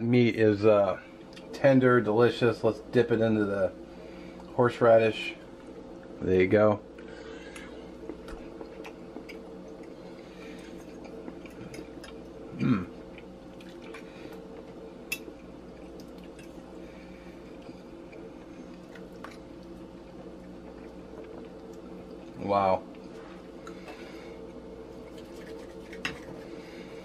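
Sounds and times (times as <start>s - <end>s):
man chewing: 7.0s - 27.0s
man humming mmm: 12.5s - 13.0s.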